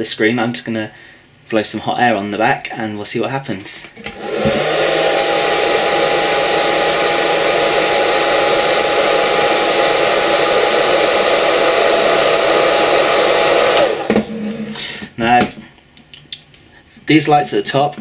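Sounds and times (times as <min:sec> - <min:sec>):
hair dryer running: 0:04.0 - 0:14.9.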